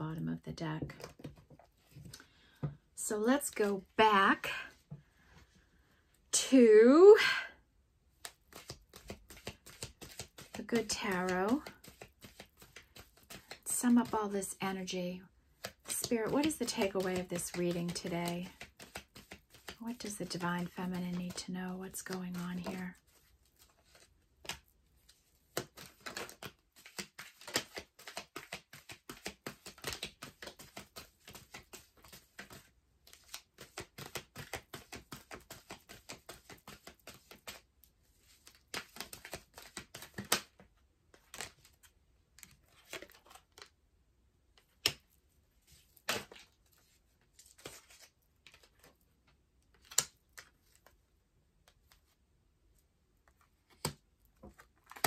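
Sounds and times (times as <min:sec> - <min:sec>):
cards being shuffled: 0:00.8 - 0:02.8, 0:08.2 - 0:43.7, 0:44.6 - 0:49.0, 0:49.7 - 0:51.0, 0:53.2 - 0:55.0.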